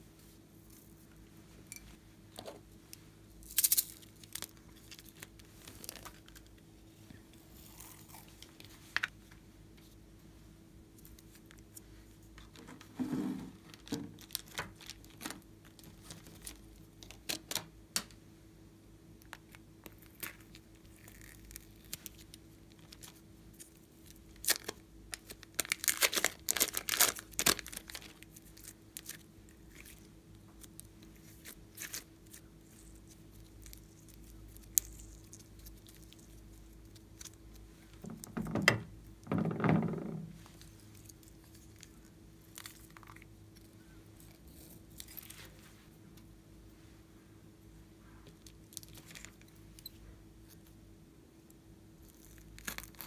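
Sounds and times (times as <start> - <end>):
faint steady hum: 0.0 - 53.0
crackling tearing clay: 52.0 - 53.0.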